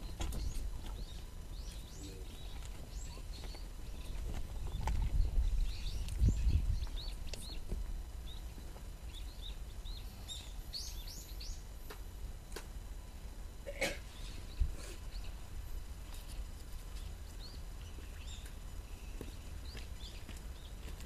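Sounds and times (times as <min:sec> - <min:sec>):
small birds chirping: 0:00.0 - 0:11.7, 0:14.1 - 0:15.5, 0:16.1 - 0:21.0
low microphone rumble: 0:02.3 - 0:10.0.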